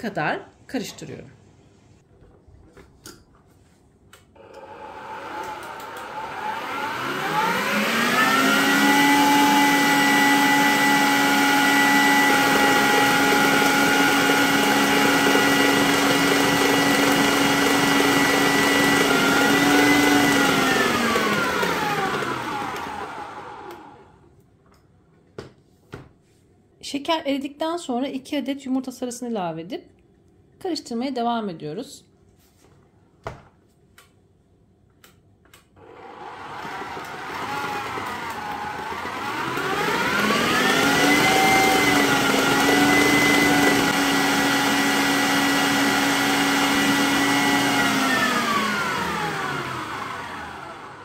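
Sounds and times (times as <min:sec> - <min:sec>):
stand mixer motor whine: 0:04.4 - 0:24.2, 0:35.8 - 0:51.0.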